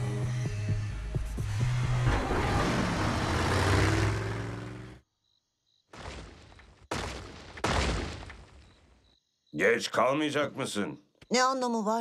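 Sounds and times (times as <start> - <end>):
rush of driving noise: 1.4 - 5.0
cartoon car engine: 1.6 - 5.0.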